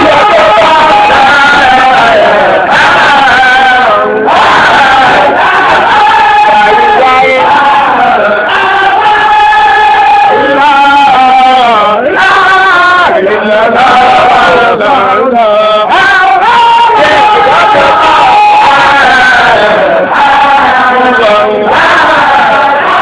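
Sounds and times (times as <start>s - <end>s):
voices chanting: 0.0s - 23.0s.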